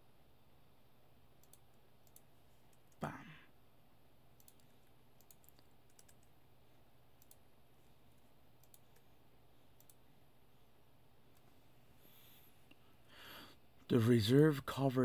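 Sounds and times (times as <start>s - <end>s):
low steady hum: 0.0s - 15.0s
computer mouse clicks: 1.4s - 3.0s, 4.4s - 6.4s, 7.2s - 7.4s, 8.2s - 9.1s, 9.8s - 10.0s.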